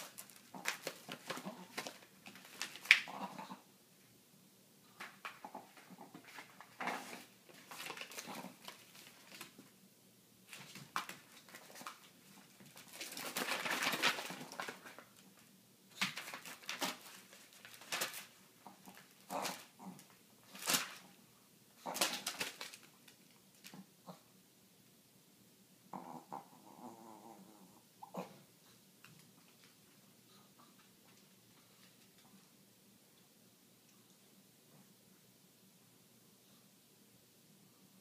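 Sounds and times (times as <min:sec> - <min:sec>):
paper envelope crinkling: 0:00.0 - 0:03.3, 0:05.0 - 0:09.7, 0:10.5 - 0:21.1, 0:21.8 - 0:23.8
small dog noises: 0:00.0 - 0:03.7, 0:18.5 - 0:21.2.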